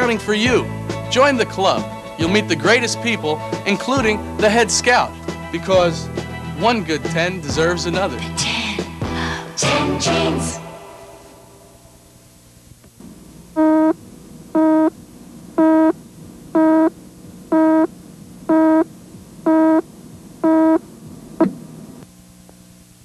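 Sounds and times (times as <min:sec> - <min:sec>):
short electronic beeps: 0:13.6 - 0:14.0, 0:14.6 - 0:15.0, 0:15.6 - 0:16.0, 0:16.6 - 0:16.9, 0:17.5 - 0:17.9, 0:18.5 - 0:18.9, 0:19.5 - 0:19.8, 0:20.4 - 0:20.8.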